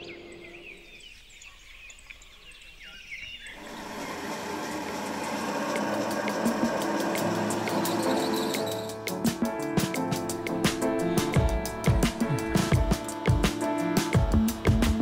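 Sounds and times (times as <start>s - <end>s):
small birds chirping: 0.0s - 4.4s, 7.6s - 9.1s
grinding machine running: 3.6s - 9.0s.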